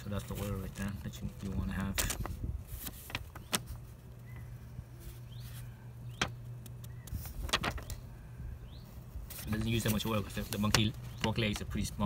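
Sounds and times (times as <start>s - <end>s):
paper booklet rustling: 0.0s - 8.1s, 9.1s - 12.0s
steady low hum: 0.0s - 12.0s
faint bird chirps: 4.2s - 9.0s.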